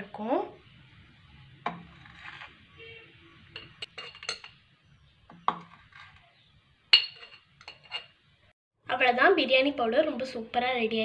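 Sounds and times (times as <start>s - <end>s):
spoon scraping a plate: 1.7s - 2.9s, 3.5s - 4.6s, 5.5s - 6.4s, 7.0s - 8.2s
metal spoon clinking on glass jar: 3.6s - 4.6s, 6.9s - 8.2s.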